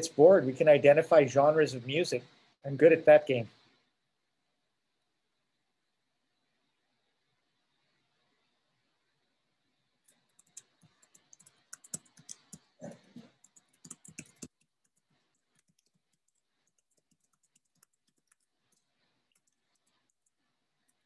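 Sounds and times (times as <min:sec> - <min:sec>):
computer keyboard typing: 0:10.0 - 0:21.0.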